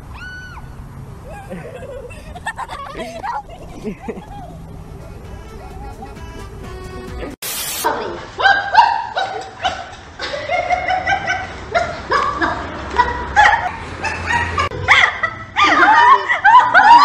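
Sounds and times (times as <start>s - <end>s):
dog yipping and barking: 7.8s - 9.9s.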